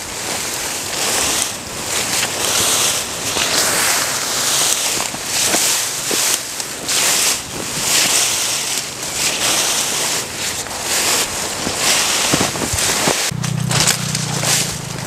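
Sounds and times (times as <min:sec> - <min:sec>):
grass and brush swishing: 0:00.0 - 0:15.0.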